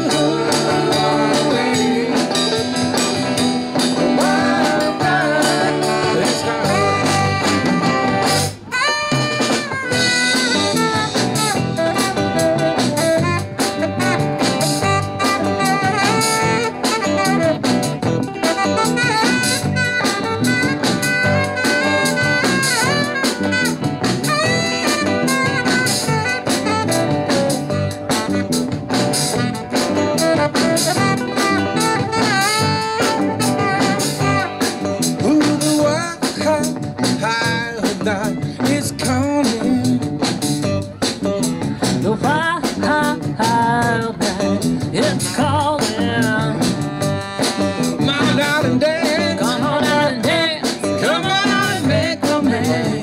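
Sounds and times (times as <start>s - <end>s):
saxophone: 0.0s - 37.6s, 38.9s - 53.0s
bass: 0.0s - 53.0s
drum kit: 0.0s - 53.0s
electric guitar: 0.0s - 53.0s
woman singing: 42.0s - 46.9s, 48.1s - 53.0s.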